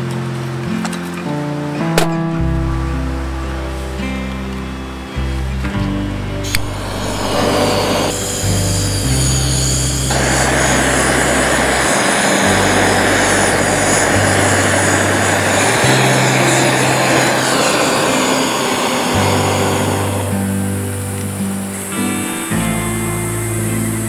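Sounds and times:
background music with bass line: 0.0 - 17.7, 19.1 - 24.0
gas torch hissing roar: 6.4 - 24.0.

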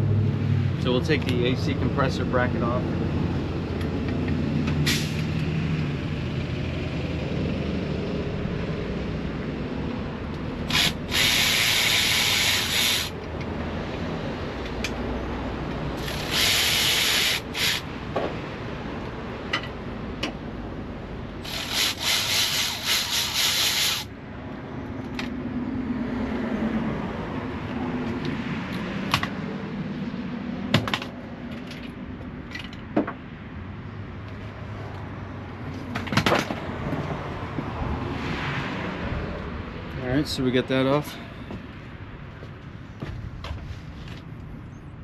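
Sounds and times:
power tool bursts: 10.7 - 13.2, 16.0 - 17.9, 21.4 - 24.1.

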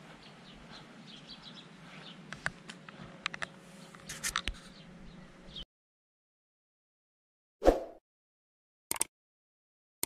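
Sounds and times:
sharp clicks and ticks: 8.9 - 9.1.

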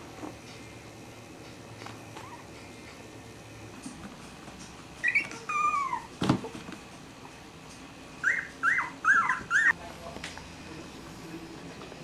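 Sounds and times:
puppies whimpering: 5.0 - 6.1, 8.2 - 9.8.

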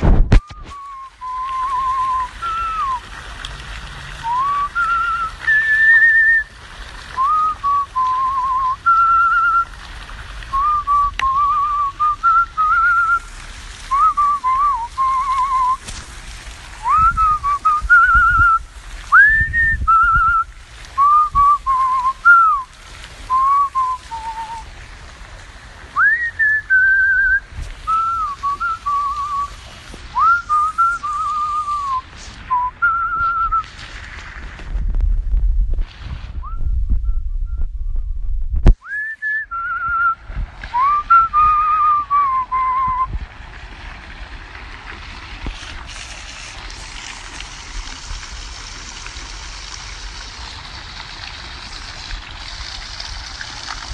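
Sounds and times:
man whistling: 0.3 - 3.0, 4.2 - 6.5, 7.2 - 9.7, 10.5 - 13.3, 13.9 - 15.8, 16.8 - 22.7, 23.3 - 24.7, 26.0 - 29.5, 30.2 - 33.7, 36.4 - 43.2.

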